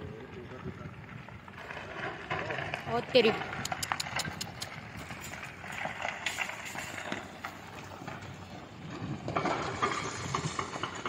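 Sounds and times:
rocks clattering down a slope: 0.1s - 11.0s.

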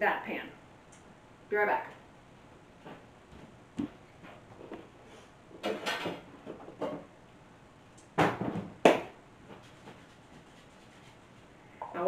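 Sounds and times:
kitchen knocks and clatters: 5.5s - 7.1s, 8.2s - 10.0s.

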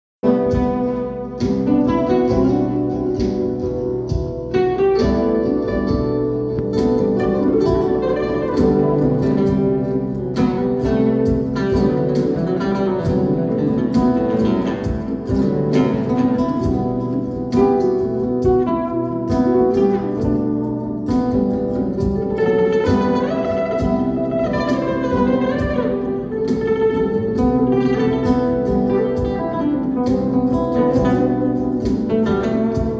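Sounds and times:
acoustic guitar playing: 0.2s - 32.9s.

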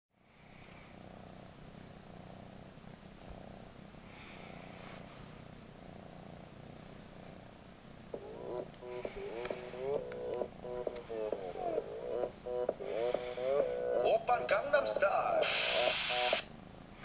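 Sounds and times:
kitten purring: 0.2s - 17.0s
music from small speaker: 8.2s - 16.4s.

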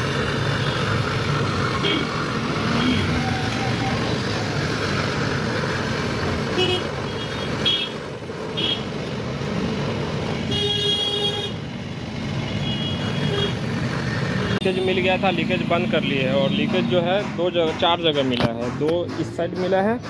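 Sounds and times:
butane torch hissing: 0.0s - 14.4s
street traffic noise: 0.0s - 20.0s
vehicle horns tooting: 6.6s - 8.0s, 8.6s - 8.9s, 10.4s - 11.6s, 12.5s - 13.7s.

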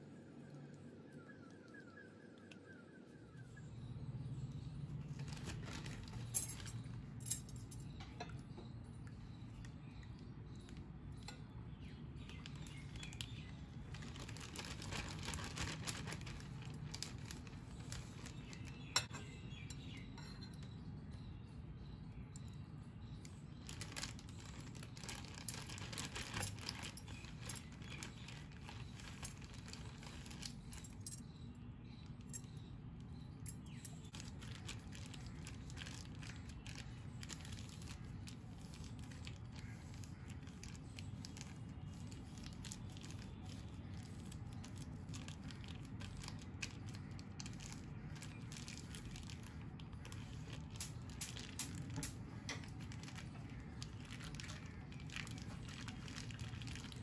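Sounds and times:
plastic bag crinkling: 5.0s - 7.8s, 12.2s - 19.0s, 23.6s - 31.2s, 33.5s - 57.0s.

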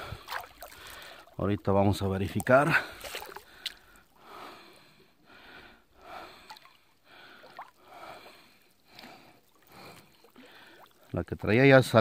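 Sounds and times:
man breathing: 0.0s - 1.3s, 2.7s - 11.0s.

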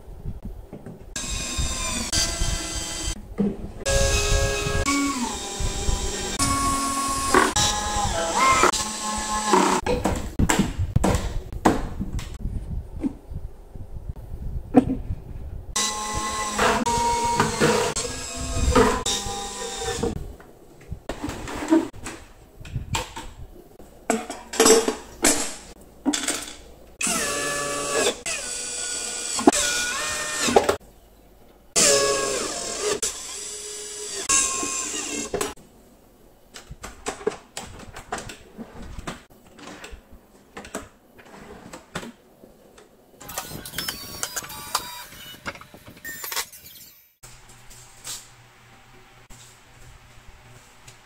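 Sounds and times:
cordless drill motor whine: 1.2s - 3.2s, 3.9s - 9.8s, 15.8s - 20.1s, 27.0s - 30.7s, 31.8s - 35.5s, 43.2s - 45.5s.

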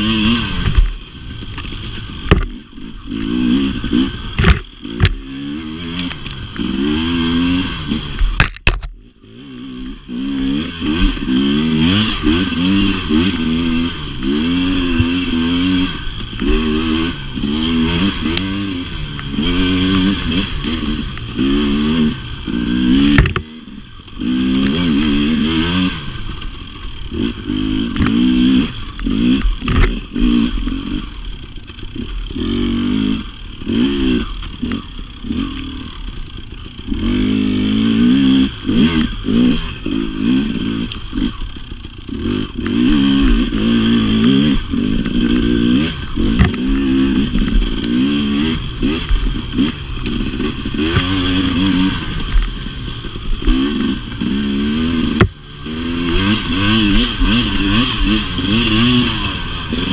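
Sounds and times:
dirt bike engine revving: 0.0s - 59.9s
clattering over rough ground: 0.5s - 6.7s, 22.2s - 32.6s, 38.9s - 59.9s.

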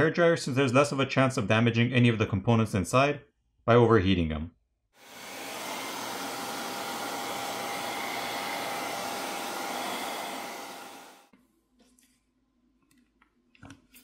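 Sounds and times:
hair dryer blowing with whine: 5.0s - 11.3s.

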